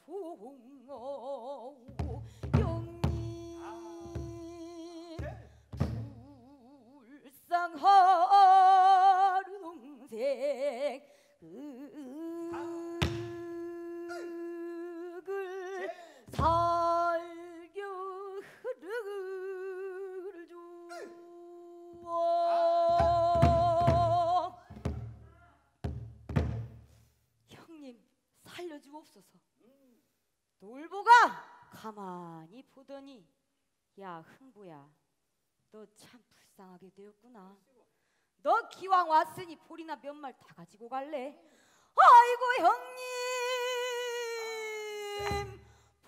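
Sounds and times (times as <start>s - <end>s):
woman singing with wide vibrato: 0.0s - 24.9s, 30.7s - 32.3s, 38.5s - 45.8s
barrel drum strokes: 23.0s - 27.0s.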